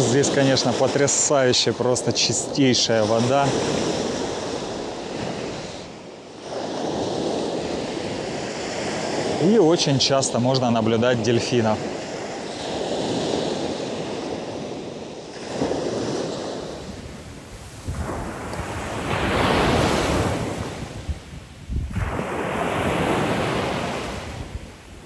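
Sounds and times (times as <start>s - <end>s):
surf breaking on beach: 0.0s - 25.0s
wind buffeting microphone: 11.8s - 25.0s.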